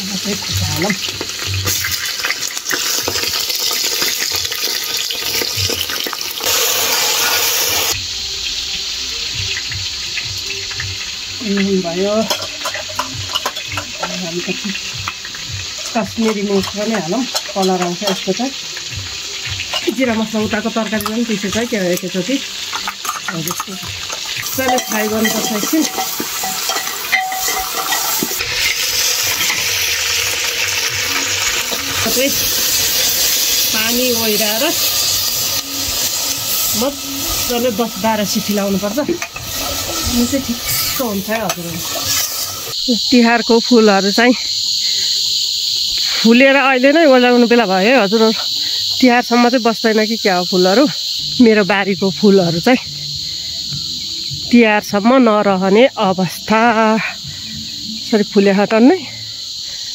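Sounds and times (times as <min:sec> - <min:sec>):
meat sizzling in hot oil: 0:00.0 - 0:59.8.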